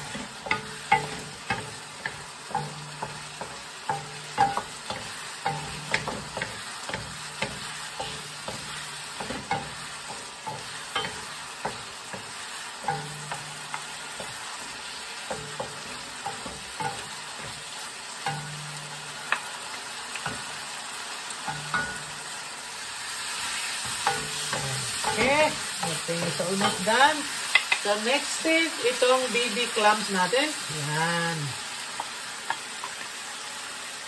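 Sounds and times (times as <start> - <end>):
food sizzling: 0.0 - 34.0
wooden spatula clacking in wok: 0.3 - 14.5, 15.2 - 20.5.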